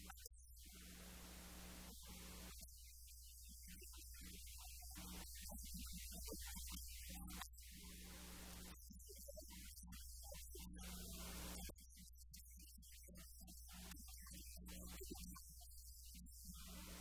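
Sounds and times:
low electrical mains hum: 0.8s - 2.5s.

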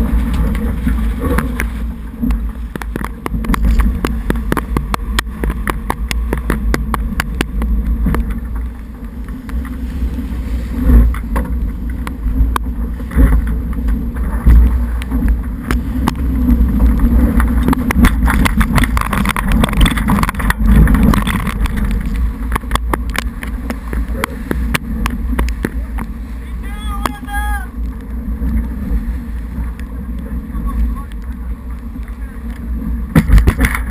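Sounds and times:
water rushing along hull: 0.0s - 33.9s
wind buffeting microphone: 0.0s - 33.9s
sharp taps and knocks: 1.3s - 8.8s, 17.3s - 26.1s.

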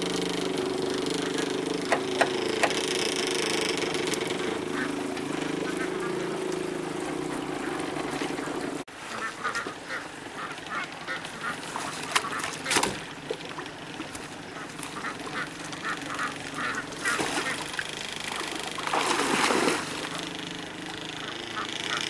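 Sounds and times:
steady low hum: 0.0s - 8.9s, 10.0s - 22.0s
sharp knocks or splashes: 1.8s - 2.9s, 16.6s - 20.3s
ducks quacking: 4.1s - 13.0s, 14.4s - 19.0s, 20.0s - 22.0s.

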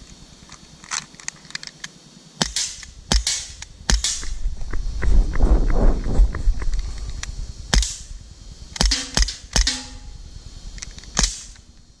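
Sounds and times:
air pistol shots: 2.4s - 4.4s, 7.7s - 8.1s, 8.8s - 10.2s, 11.1s - 11.7s
steel target ringing: 8.8s - 10.3s.

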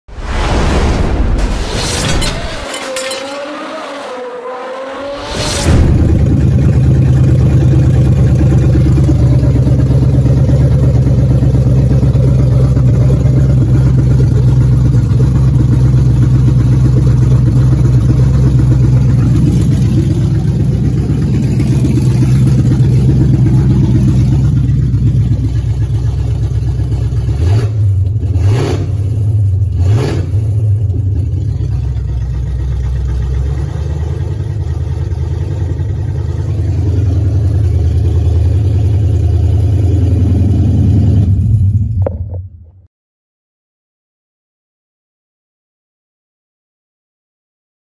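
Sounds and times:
engine revving: 3.2s - 41.8s
car engine running: 5.1s - 42.6s.

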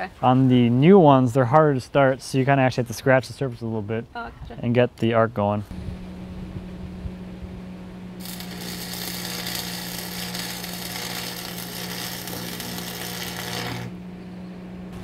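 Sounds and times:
steady low hum: 0.0s - 15.0s
welding arc crackling and buzzing: 8.2s - 14.0s.

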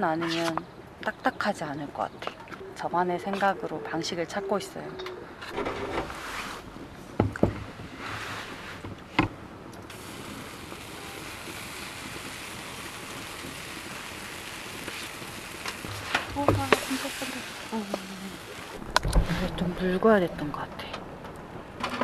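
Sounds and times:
batter sizzling: 9.9s - 20.2s.

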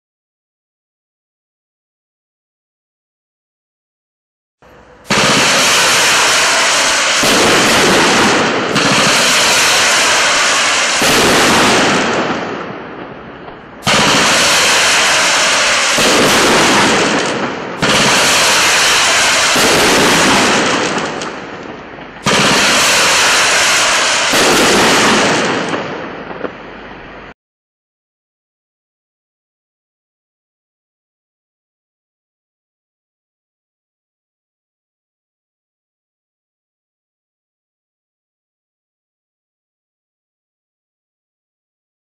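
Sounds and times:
fireworks launches and bursts: 4.6s - 27.4s.

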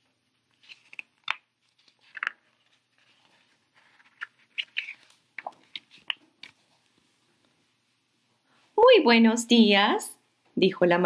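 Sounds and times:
book pages rustling: 0.0s - 8.0s.

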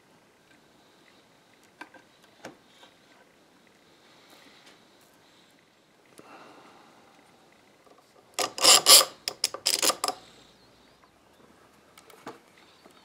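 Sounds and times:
metal clamp rasping and rattling: 8.4s - 10.2s.

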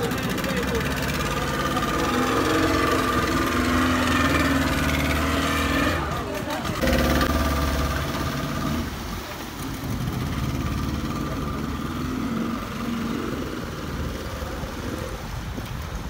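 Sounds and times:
outboard motors running: 0.0s - 16.0s
propeller wash churning water: 0.0s - 16.0s.

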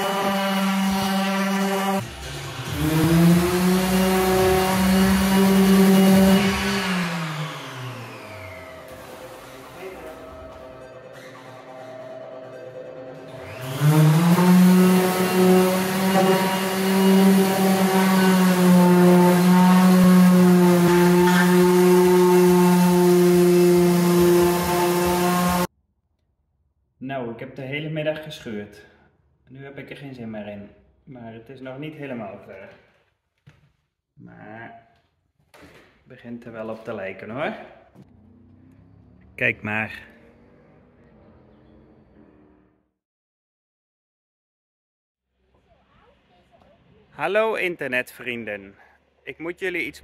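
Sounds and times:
electric sander running: 0.0s - 10.0s, 13.4s - 25.7s.

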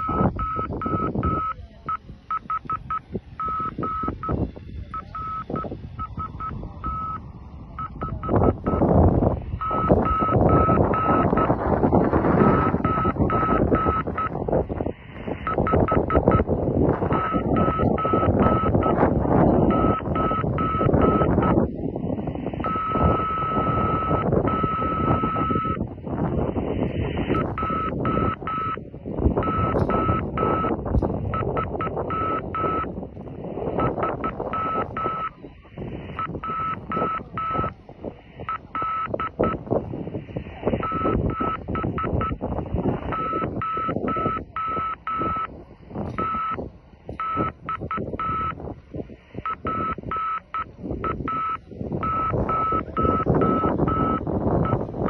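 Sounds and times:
radio receiver hiss: 0.0s - 48.2s.

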